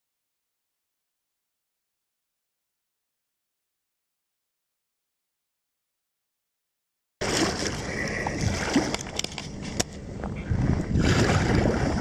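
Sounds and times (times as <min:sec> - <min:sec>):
paddle strokes splashing water: 0:07.2 - 0:12.0
wind rumbling on microphone: 0:07.2 - 0:12.0.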